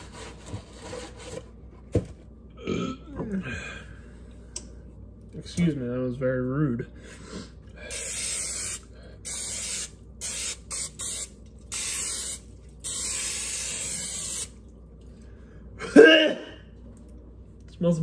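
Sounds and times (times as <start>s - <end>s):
aerosol spray hissing: 7.9s - 14.6s.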